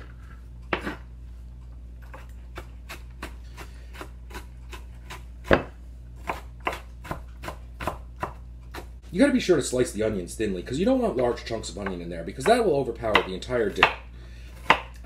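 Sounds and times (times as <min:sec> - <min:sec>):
knife chopping on wooden board: 0:02.1 - 0:08.9, 0:11.8 - 0:15.0.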